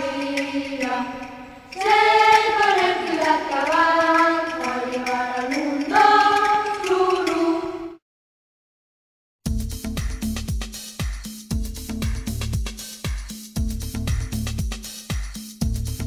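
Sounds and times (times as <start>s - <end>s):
choir singing: 0.0s - 8.0s.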